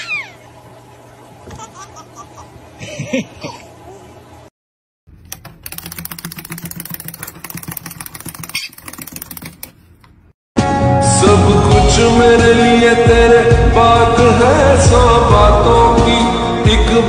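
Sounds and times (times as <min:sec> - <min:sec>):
wind-up toy clicking: 0:05.3 - 0:09.7
short squeaky sounds: 0:08.4 - 0:08.9.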